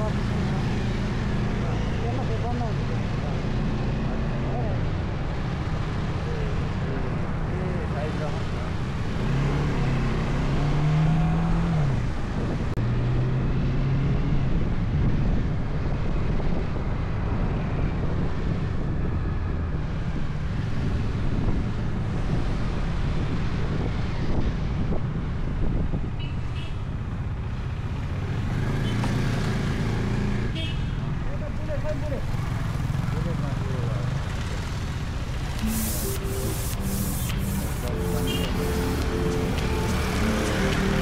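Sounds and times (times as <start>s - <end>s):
wind rushing over microphone: 11.4s - 26.2s.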